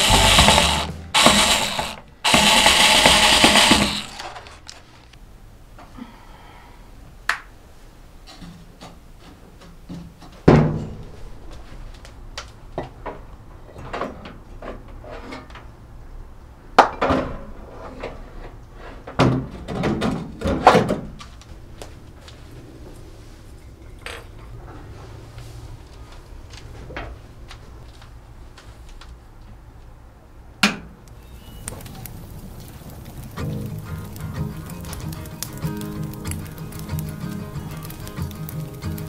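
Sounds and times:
knocks and clicks: 0:00.0 - 0:04.6.

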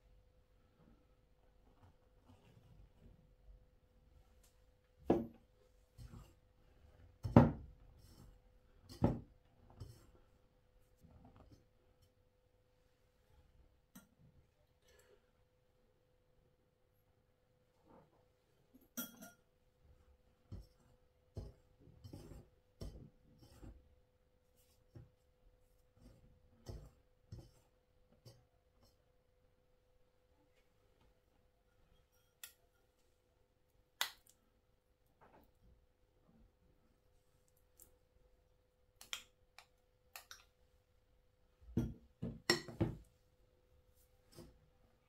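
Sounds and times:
hand rubbing flour in bowl: 0:20.2 - 0:23.8.

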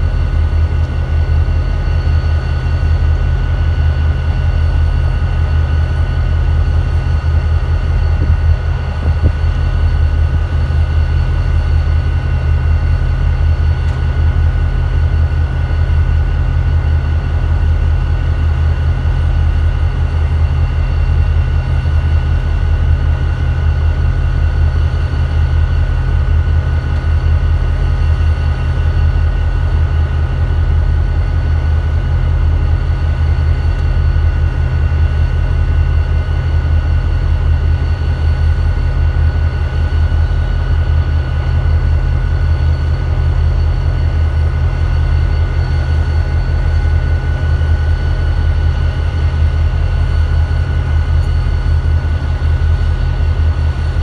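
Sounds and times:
diesel locomotives idling: 0:00.0 - 0:54.0
thin steady whine: 0:00.0 - 0:54.0.

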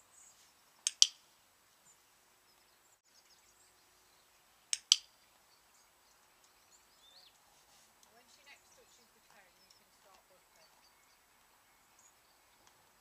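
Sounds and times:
faint bird chirps: 0:00.0 - 0:13.0
sharp double click: 0:00.9 - 0:01.2, 0:04.7 - 0:05.1.

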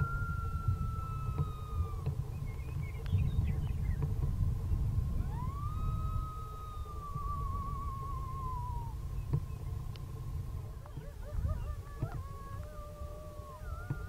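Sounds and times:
coyote howling: 0:00.0 - 0:02.6, 0:05.1 - 0:09.2, 0:10.7 - 0:14.0
wind rumble on microphone: 0:00.0 - 0:14.0.

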